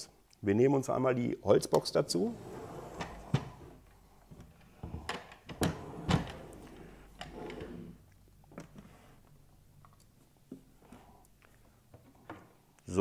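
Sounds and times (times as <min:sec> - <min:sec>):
wooden crate scraping slide: 0:02.3 - 0:03.8.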